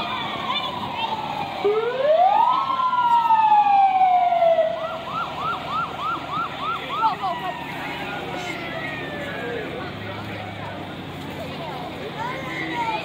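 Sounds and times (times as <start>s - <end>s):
ambulance siren wailing and yelping: 0.0s - 9.8s.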